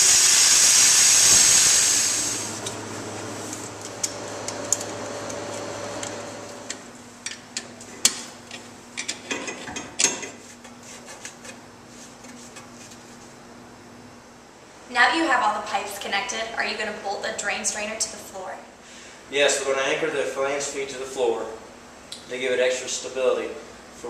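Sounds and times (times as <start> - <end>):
power tool hissing: 0.0 - 6.7.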